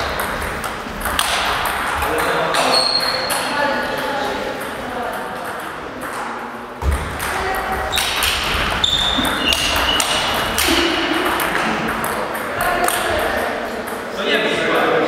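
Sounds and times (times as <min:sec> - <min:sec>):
table tennis ball clicking: 0:00.1 - 0:14.1
shoes squeaking on wooden floor: 0:02.5 - 0:03.5, 0:07.8 - 0:10.9.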